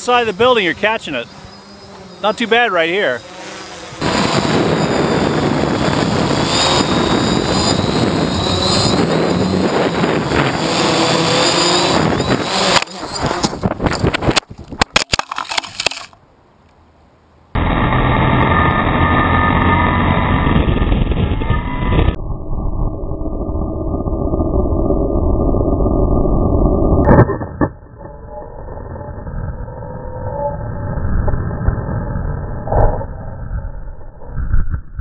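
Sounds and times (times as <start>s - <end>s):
air rushing over camera: 0.0s - 14.9s
quadcopter motors whirring: 0.1s - 14.4s, 17.6s - 22.2s.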